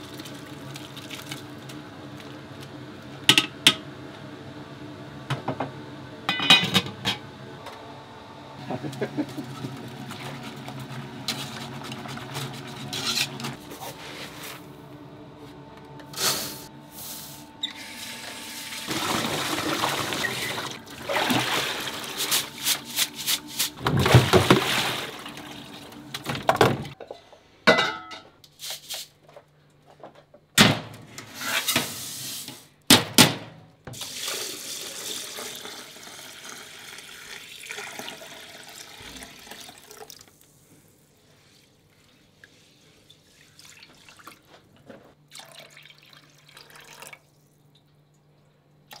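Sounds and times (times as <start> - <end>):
steady hum: 12.6 - 27.0
water running from tap: 17.9 - 22.5, 34.0 - 40.4.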